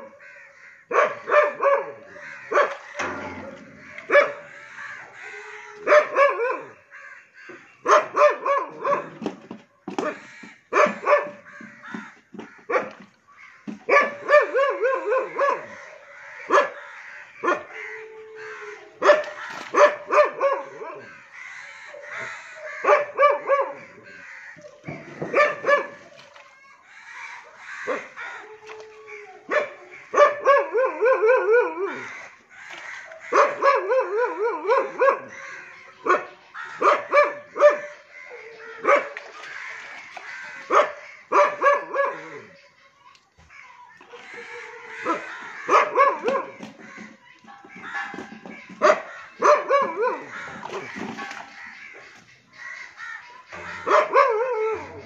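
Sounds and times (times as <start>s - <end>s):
dog barking: 0.9s - 3.2s, 4.0s - 4.5s, 5.7s - 6.8s, 7.8s - 9.3s, 10.0s - 11.4s, 12.7s - 13.0s, 13.9s - 17.9s, 18.6s - 21.1s, 22.1s - 24.0s, 25.2s - 26.2s, 29.4s - 32.1s, 33.1s - 35.4s, 36.0s - 39.2s, 40.6s - 42.5s, 44.3s - 46.8s, 47.7s - 50.9s, 53.6s - 55.0s.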